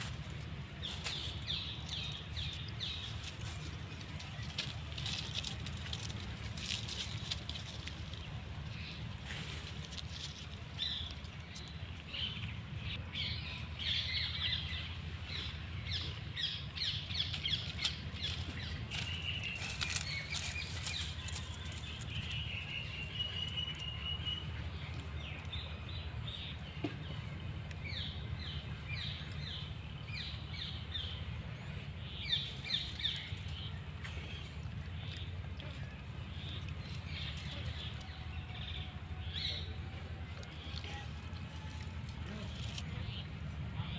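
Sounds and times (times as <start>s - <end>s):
small birds chirping: 0.0s - 43.9s
steady low rumble: 0.0s - 43.9s.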